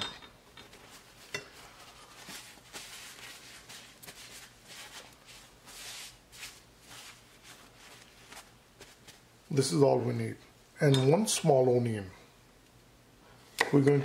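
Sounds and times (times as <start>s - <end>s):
paper towel rustling on squash: 0.8s - 9.5s.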